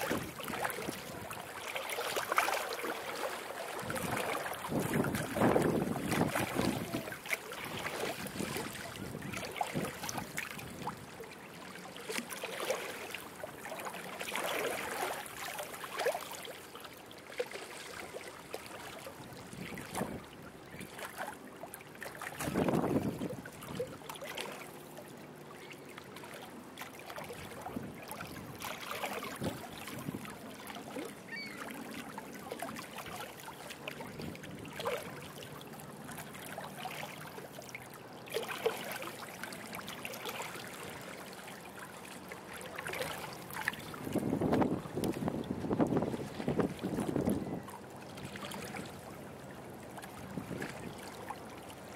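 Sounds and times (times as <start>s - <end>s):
small waves lapping: 0.0s - 51.9s
wind buffeting microphone: 4.7s - 7.1s, 22.4s - 23.4s, 44.0s - 47.7s.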